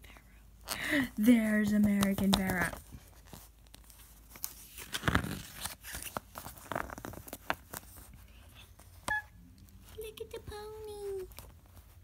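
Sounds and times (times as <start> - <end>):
paper pages rustling: 1.2 - 9.0
paper crinkles and clicks: 1.7 - 8.1.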